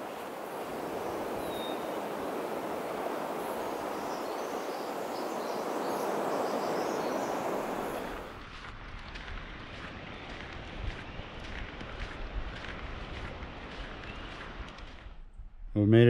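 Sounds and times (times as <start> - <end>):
water rushing: 0.0 - 8.4.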